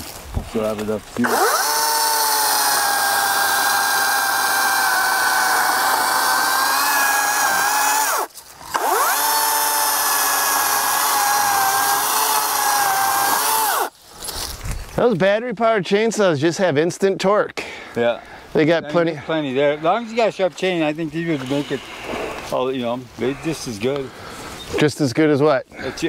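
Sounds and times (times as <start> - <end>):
electric chainsaw whine: 1.2 - 14.0.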